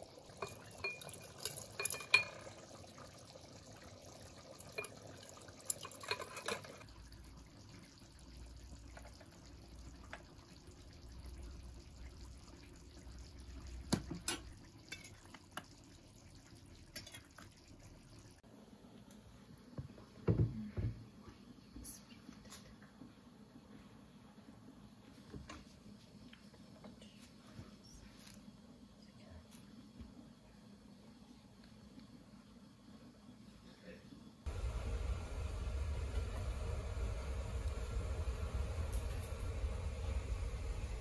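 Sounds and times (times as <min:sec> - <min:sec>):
metal ladle clinking on glass jar: 0:00.4 - 0:02.4.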